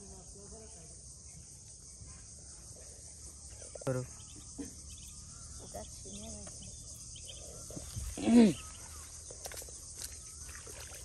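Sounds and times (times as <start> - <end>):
crickets and insects chirping: 0.0 - 11.0.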